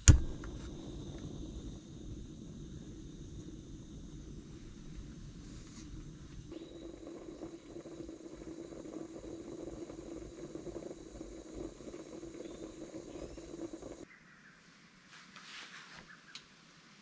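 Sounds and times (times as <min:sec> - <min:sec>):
gas stove flame hissing: 0:00.0 - 0:14.0.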